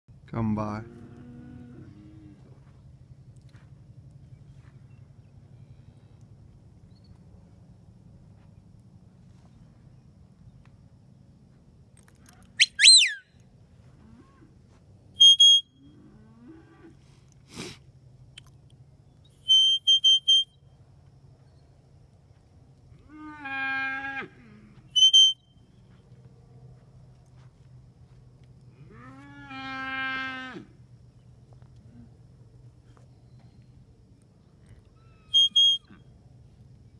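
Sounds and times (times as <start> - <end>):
herding whistles: 12.6 - 13.2, 15.2 - 15.8, 19.4 - 20.6, 25.0 - 25.6, 35.2 - 36.0.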